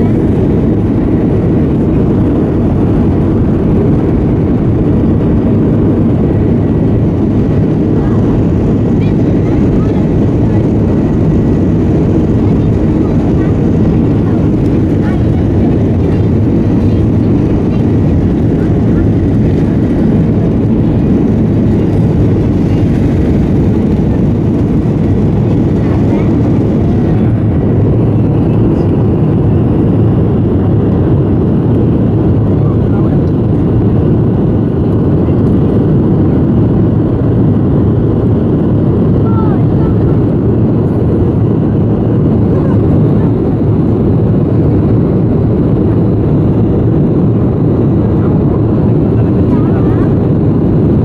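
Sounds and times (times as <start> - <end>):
faint high engine whine: 0.0 - 51.0
jet engine rumble in cabin: 0.0 - 51.0.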